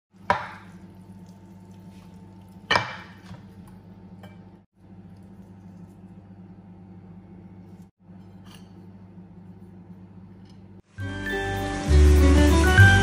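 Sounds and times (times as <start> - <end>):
metal tongs clinking on cookware: 8.1 - 8.9.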